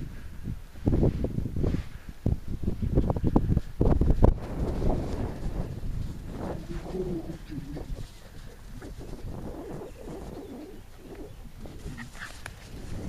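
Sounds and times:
wind noise on microphone: 0.0s - 13.0s
dove cooing: 6.2s - 13.0s.

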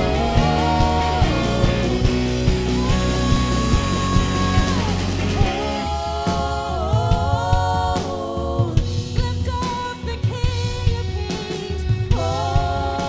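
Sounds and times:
bass guitar: 0.0s - 13.0s
drum kit: 0.0s - 13.0s
woman singing into microphone: 2.7s - 13.0s.

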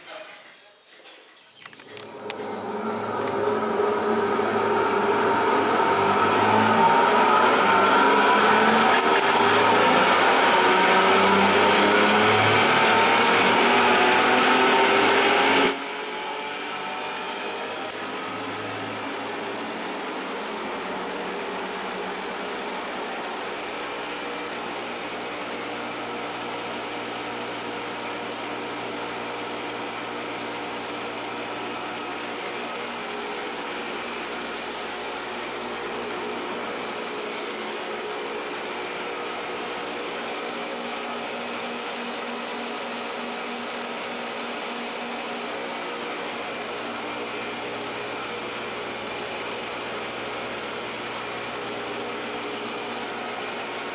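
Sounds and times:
flour mill whirring hum: 1.8s - 53.9s.

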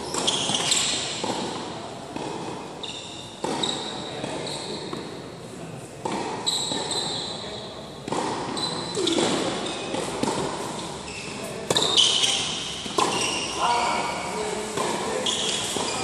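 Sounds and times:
shoes squeaking on hard court: 0.0s - 1.6s, 2.2s - 5.1s, 6.0s - 16.0s
tennis ball struck by rackets: 0.1s - 2.6s, 3.4s - 5.1s, 6.0s - 7.1s, 8.0s - 13.4s, 14.7s - 16.0s.

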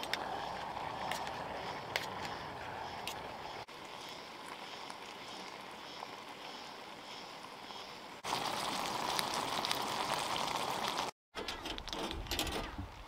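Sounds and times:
pasta water boiling hard: 0.0s - 11.2s.

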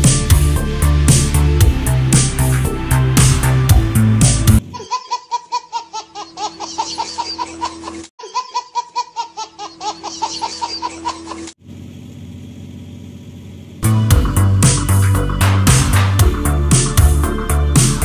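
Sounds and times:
baby giggling: 4.7s - 11.6s.

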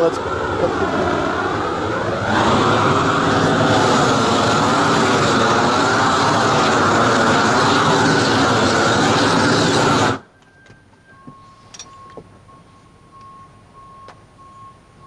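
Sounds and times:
roofing torch flame rushing: 0.0s - 10.3s.

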